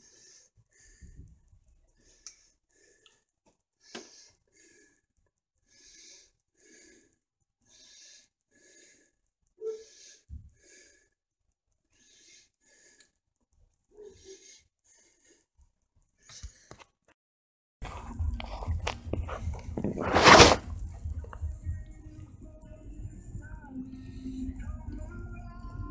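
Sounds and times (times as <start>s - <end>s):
person breathing: 0.0s - 11.2s, 11.9s - 13.2s, 14.0s - 15.6s, 16.2s - 16.9s, 23.0s - 25.0s.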